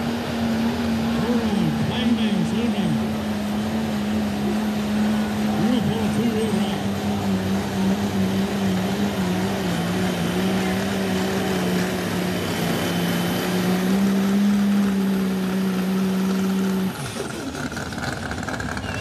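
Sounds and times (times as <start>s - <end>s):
engine running at high revs: 0.0s - 19.0s.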